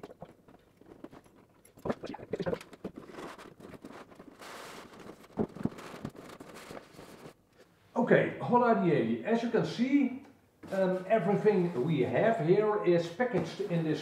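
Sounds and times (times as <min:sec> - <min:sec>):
cardboard rustling and scraping: 0:02.6 - 0:07.4.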